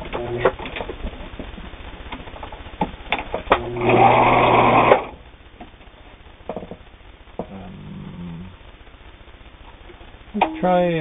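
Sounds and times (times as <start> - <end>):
sewing machine running: 3.6 - 5.2.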